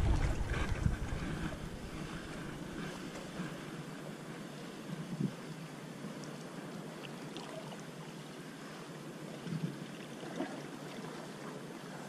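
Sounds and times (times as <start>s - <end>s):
sea water washing against rocks: 0.0s - 3.5s.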